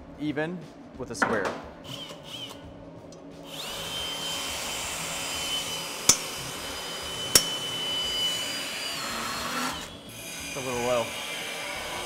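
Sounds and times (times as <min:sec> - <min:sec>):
power drill whining: 0:03.4 - 0:12.0.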